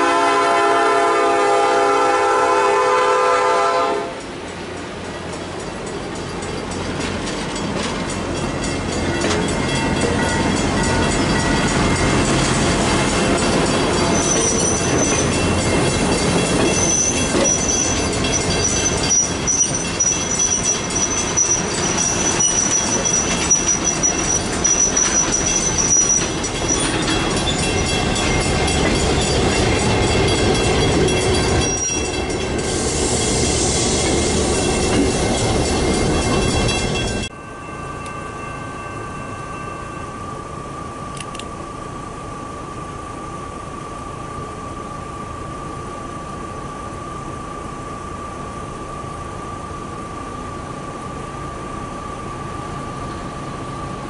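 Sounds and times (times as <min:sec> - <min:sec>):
locomotive horn: 0:00.0 - 0:04.4
wheels clicking over rail joints: 0:04.2 - 0:32.6
high steady wheel squeal: 0:07.6 - 0:54.0.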